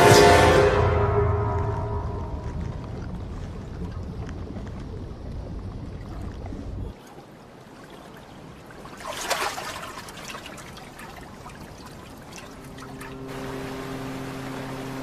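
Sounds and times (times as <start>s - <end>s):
low steady hum: 0.0s - 15.0s
water fizzing and trickling: 2.4s - 15.0s.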